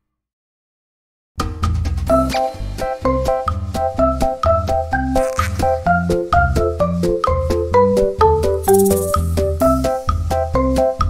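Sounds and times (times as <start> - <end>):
upbeat music with beat and bass: 2.2 - 11.0.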